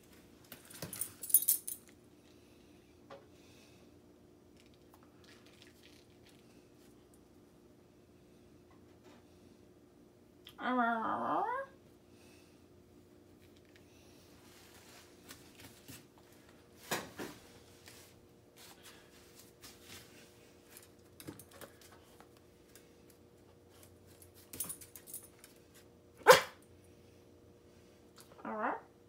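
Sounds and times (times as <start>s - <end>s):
faint steady hum: 0.0s - 29.0s
dog paws clicking on tile: 20.7s - 25.8s
dog barking sharply: 26.2s - 26.6s.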